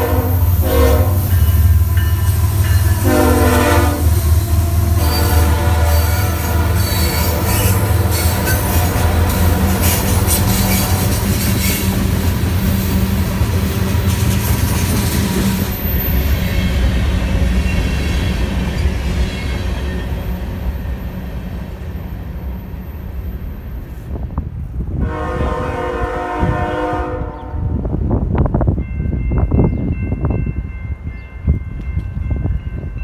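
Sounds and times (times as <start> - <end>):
locomotive horn: 0.0 - 1.6, 2.7 - 12.0, 25.0 - 27.9
crossing bell ringing: 0.0 - 9.6, 28.7 - 33.0.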